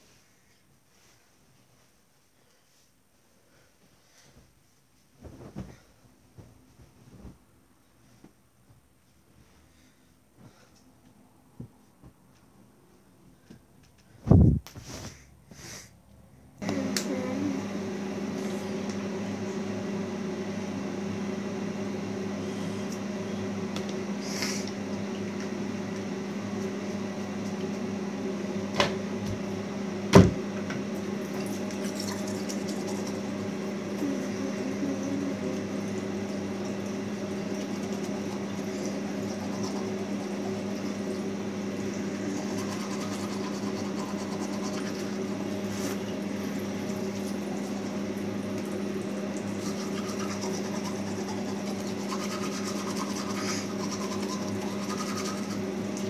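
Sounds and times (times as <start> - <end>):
low electrical hum: 0.0 - 56.0
toothbrush scrubbing teeth: 31.4 - 33.2, 37.4 - 40.7, 42.0 - 46.0, 49.4 - 55.8.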